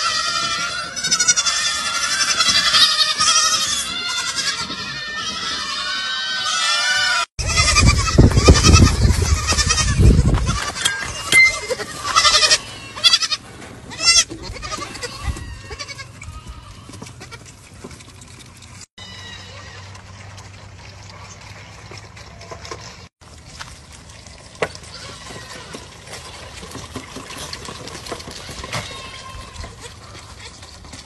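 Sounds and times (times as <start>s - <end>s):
baby goats bleating: 0.0s - 17.5s, 19.0s - 20.0s, 24.8s - 26.6s, 28.3s - 30.6s.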